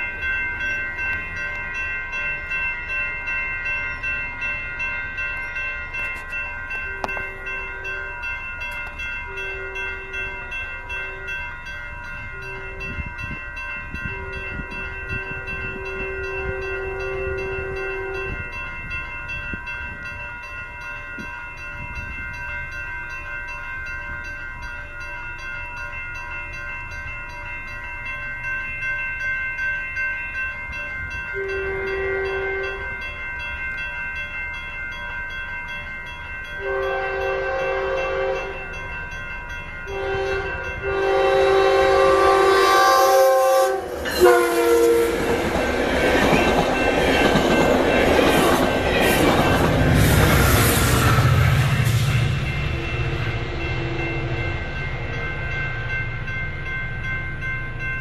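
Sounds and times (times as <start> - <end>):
railroad crossing bells ringing: 0.0 - 58.0
train horn blasts: 9.3 - 10.3, 14.0 - 18.5, 31.4 - 32.9, 36.6 - 38.6, 39.9 - 45.4
train wheels on rails rushing: 36.6 - 58.0.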